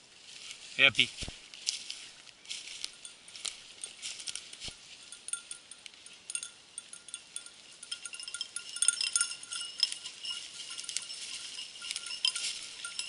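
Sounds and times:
dry leaves crackling: 0.0s - 13.0s
dog collar bell tinkling: 2.6s - 13.0s.

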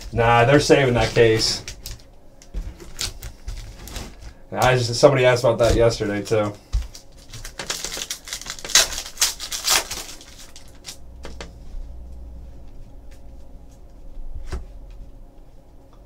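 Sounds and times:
foil wrapper crinkling and tearing: 2.8s - 4.9s, 5.6s - 11.0s.

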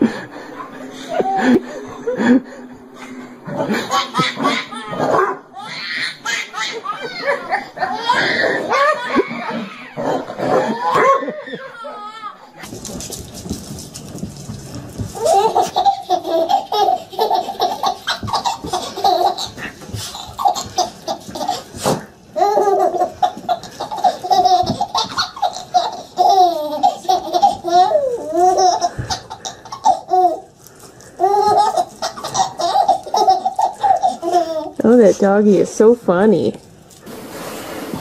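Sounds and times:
baby laughing: 3.5s - 12.6s, 15.2s - 30.5s, 31.2s - 34.8s.

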